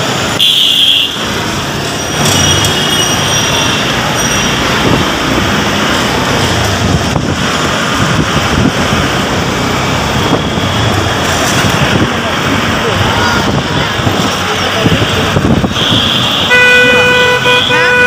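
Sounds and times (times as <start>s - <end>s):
traffic noise from moving vehicle: 0.0s - 18.0s
wind rushing over microphone: 3.8s - 17.1s.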